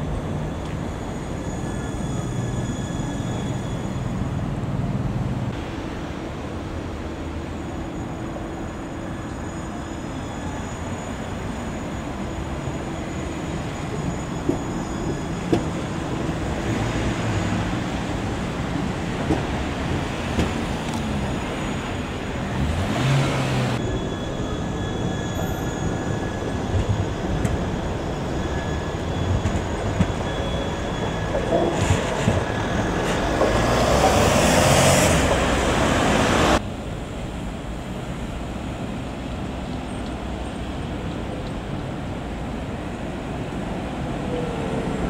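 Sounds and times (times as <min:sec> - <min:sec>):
tram wheels rolling on rails: 0:00.0 - 0:45.0
thin steady whines: 0:23.8 - 0:36.6.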